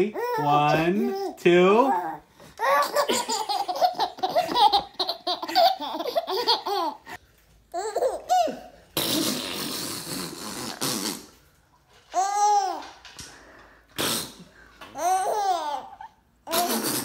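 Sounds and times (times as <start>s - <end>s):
baby vocal sounds: 0.0s - 3.1s, 12.1s - 13.0s, 14.9s - 17.0s
baby laughing: 0.2s - 9.6s, 15.0s - 17.0s.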